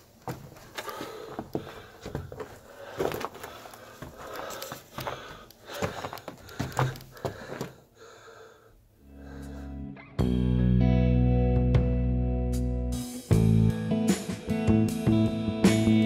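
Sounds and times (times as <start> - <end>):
footsteps crunching on gravel: 0.0 - 7.8
person breathing hard: 0.7 - 10.0.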